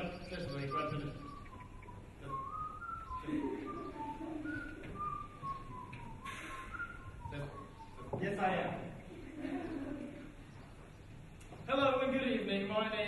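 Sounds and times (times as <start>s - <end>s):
person whistling a tune: 1.1s - 8.0s.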